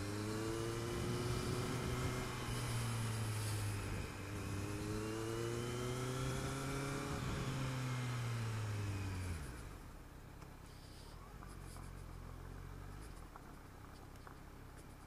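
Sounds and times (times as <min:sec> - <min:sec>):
motorcycle engine: 0:00.0 - 0:10.0
wind rush: 0:00.9 - 0:02.7.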